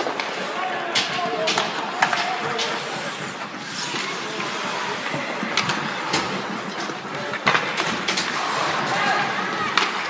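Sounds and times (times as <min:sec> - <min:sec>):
sticks and puck clacking on ice: 0:00.0 - 0:10.0
ice rink hiss: 0:02.7 - 0:05.0.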